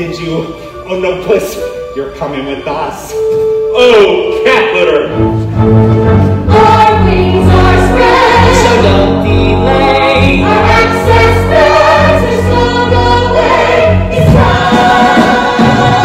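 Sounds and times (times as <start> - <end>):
pit orchestra playing: 0.0 - 16.0
cast singing in chorus: 6.5 - 16.0.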